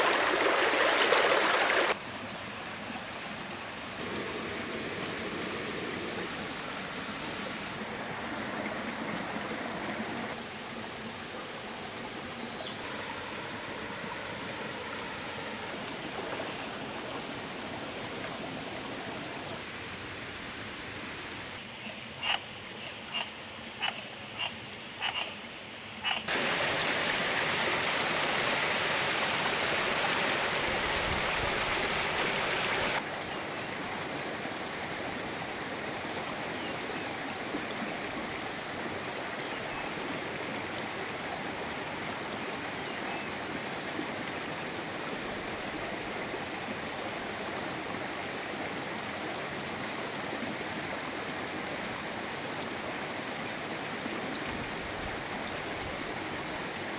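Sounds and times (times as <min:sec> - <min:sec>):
running water: 0:00.0 - 0:56.9
frog croaking: 0:21.6 - 0:26.3.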